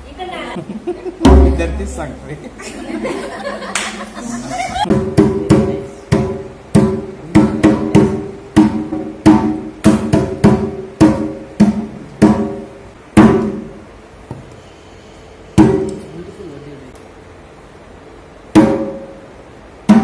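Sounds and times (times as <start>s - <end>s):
hand drum strikes: 1.2s - 2.0s, 4.8s - 13.7s, 15.6s - 16.0s, 18.5s - 19.2s.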